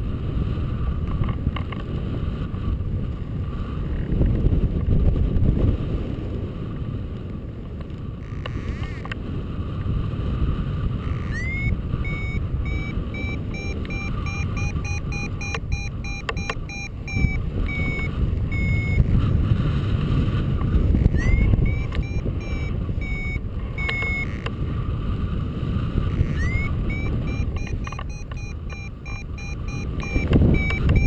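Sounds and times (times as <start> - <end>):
wind buffeting microphone: 0.0 - 31.0
variometer beeping: 11.0 - 19.3, 20.6 - 24.6, 26.0 - 31.0.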